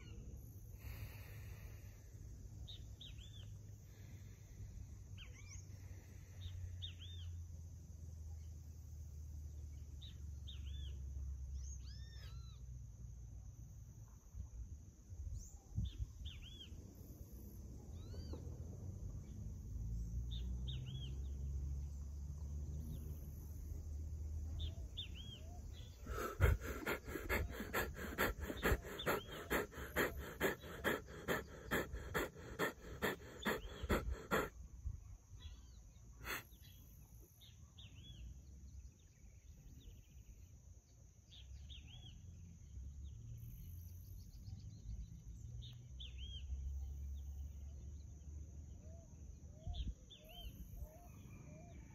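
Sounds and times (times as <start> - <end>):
man breathing hard: 0.7 - 2.4, 25.7 - 34.5, 36.2 - 36.4
birds chirping: 24.5 - 34.5.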